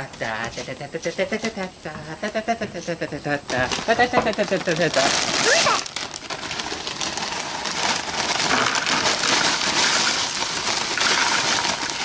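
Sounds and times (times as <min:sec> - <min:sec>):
chips rattling into a bowl: 0:03.6 - 0:12.0.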